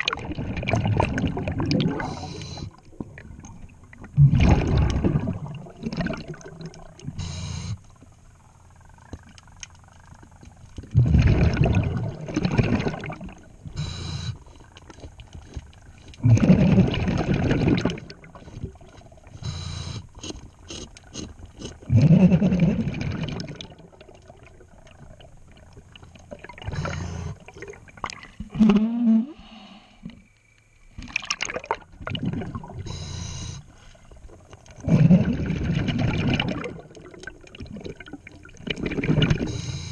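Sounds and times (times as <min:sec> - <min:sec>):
exhaled bubbles gurgling: 0:00.0 - 0:08.1, 0:08.8 - 0:15.0, 0:15.8 - 0:29.4, 0:30.9 - 0:39.9
regulator inhale hiss: 0:02.0 - 0:02.8, 0:07.2 - 0:07.8, 0:29.4 - 0:30.3, 0:32.9 - 0:34.1, 0:39.5 - 0:39.9.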